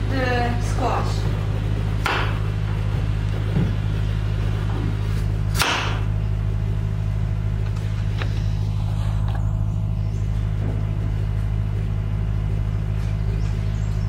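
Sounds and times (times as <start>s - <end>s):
steady low hum: 0.0s - 14.0s
knife chopping on cutting board: 2.0s - 2.4s, 5.5s - 6.0s.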